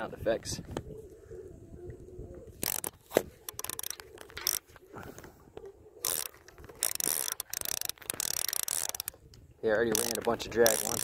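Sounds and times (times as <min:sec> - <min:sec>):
fishing reel clicker ticking: 0:02.6 - 0:04.6, 0:06.0 - 0:09.2, 0:09.9 - 0:11.0
gear knocking on plastic kayak: 0:09.9 - 0:11.0.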